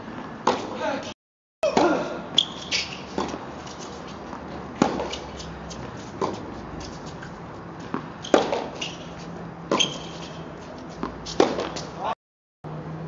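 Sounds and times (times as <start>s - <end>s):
racket striking tennis ball: 0.4s - 0.8s, 1.6s - 12.1s
short high shoe squeak: 2.3s - 3.9s, 8.2s - 10.5s.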